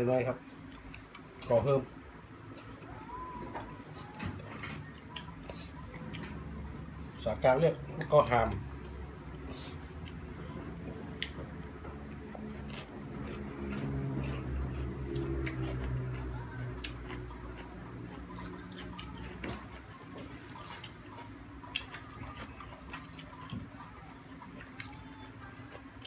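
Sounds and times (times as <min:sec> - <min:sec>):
low steady hum: 0:00.0 - 0:26.0
person chewing and lip smacking: 0:04.8 - 0:06.6, 0:07.9 - 0:26.0.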